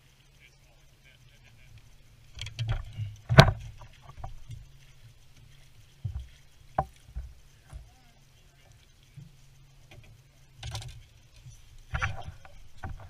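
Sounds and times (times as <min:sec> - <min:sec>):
knocks and clatter of gear: 0:02.3 - 0:08.1, 0:08.7 - 0:13.0.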